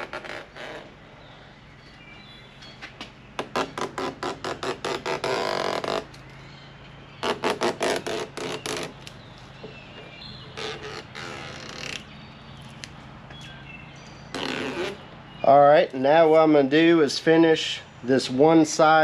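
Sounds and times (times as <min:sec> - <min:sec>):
tape liner ripping: 0:00.0 - 0:00.9, 0:03.4 - 0:06.2, 0:07.2 - 0:09.2, 0:10.6 - 0:12.1, 0:14.3 - 0:15.0.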